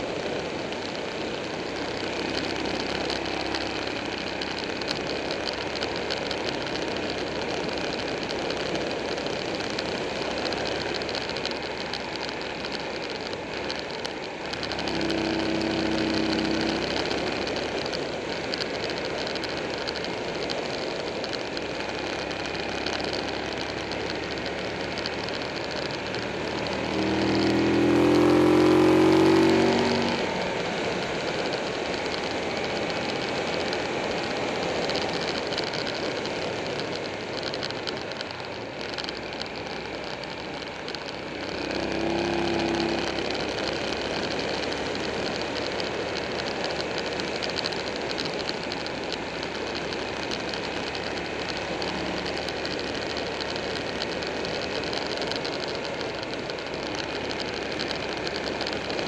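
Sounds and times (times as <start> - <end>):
motorcycle engine accelerating: 0.0 - 59.0
wind and road rush: 0.0 - 59.0.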